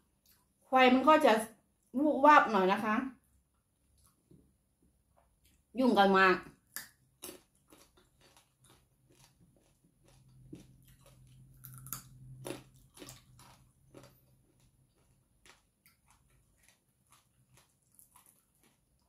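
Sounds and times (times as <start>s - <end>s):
chewing and biting crunches: 6.8s - 19.0s.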